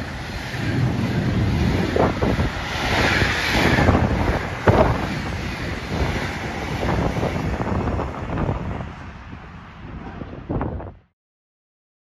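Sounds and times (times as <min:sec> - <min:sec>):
freight train passing: 0:00.0 - 0:10.8.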